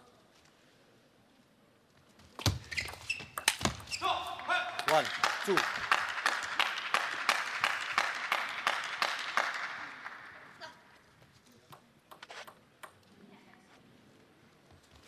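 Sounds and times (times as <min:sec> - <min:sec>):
audience applause: 0:04.8 - 0:10.5.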